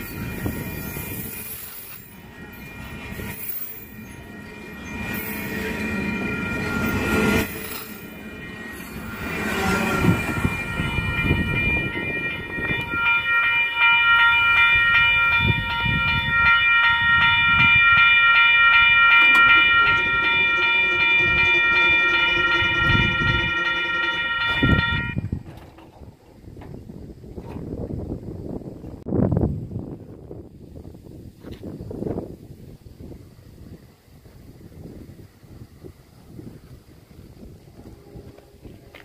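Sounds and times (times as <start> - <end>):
crossing bell ringing: 0.0 - 25.3
freight train rumbling and clanking: 0.0 - 30.6, 31.5 - 39.0.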